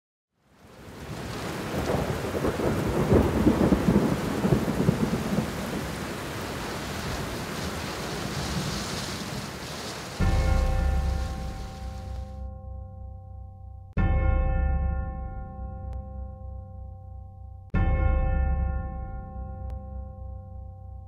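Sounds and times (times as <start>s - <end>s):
steady rain: 0.4s - 12.3s
rumble of thunder: 0.9s - 9.6s.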